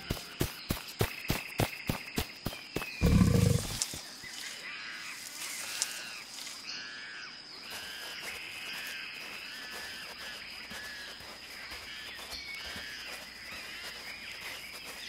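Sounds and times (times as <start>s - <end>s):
deep dinosaur roar: 3.0s - 3.8s.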